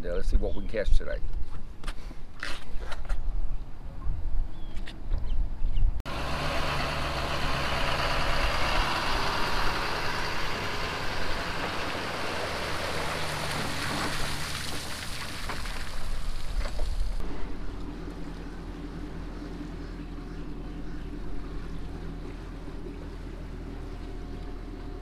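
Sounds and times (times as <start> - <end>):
vehicle engine running: 6.1 - 14.4, 17.2 - 25.0.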